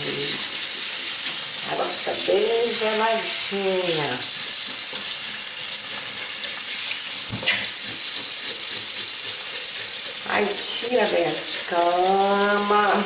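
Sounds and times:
tap running into steel sink: 0:07.2 - 0:09.4.

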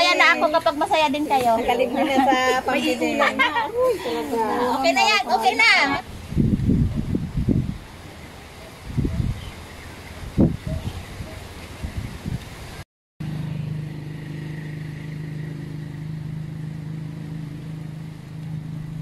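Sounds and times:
steady engine hum: 0:13.2 - 0:19.0.

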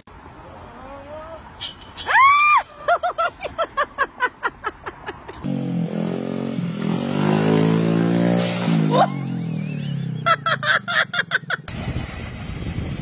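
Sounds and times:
person laughing: 0:02.5 - 0:05.4, 0:08.8 - 0:09.4, 0:10.0 - 0:11.7.

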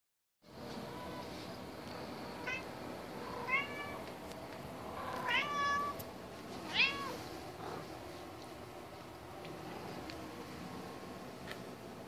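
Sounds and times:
cat meowing: 0:03.4 - 0:04.0, 0:05.1 - 0:06.0, 0:06.7 - 0:07.2.

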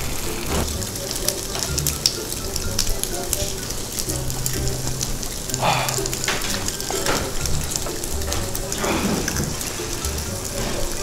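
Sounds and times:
food sizzling on a grill: 0:00.0 - 0:11.0.

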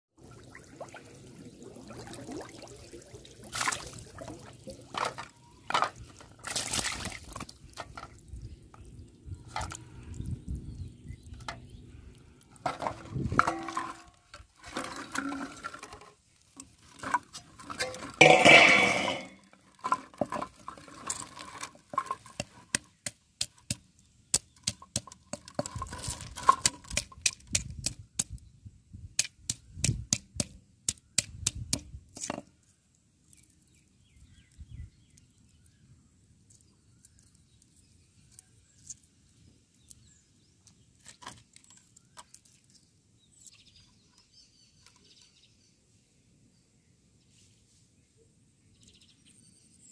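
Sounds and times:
water splashing: 0:00.2 - 0:07.8
plastic bottles clinking on steel bowl: 0:12.6 - 0:22.8.

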